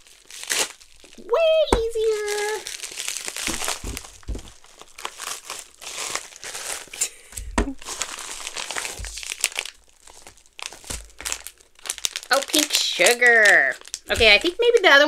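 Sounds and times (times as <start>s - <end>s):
paper packaging crinkling: 0.0s - 15.0s
dull handling bumps: 3.4s - 4.7s, 8.8s - 9.3s, 14.1s - 14.7s.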